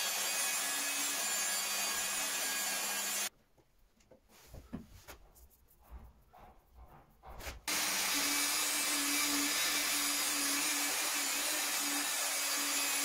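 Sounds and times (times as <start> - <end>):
hand rubbing: 4.3 - 7.6.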